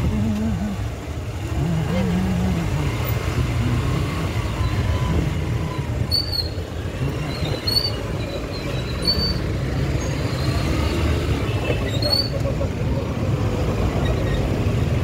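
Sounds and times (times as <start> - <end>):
motorcycle engine rumble: 0.0 - 15.0
wind and road noise: 0.0 - 15.0.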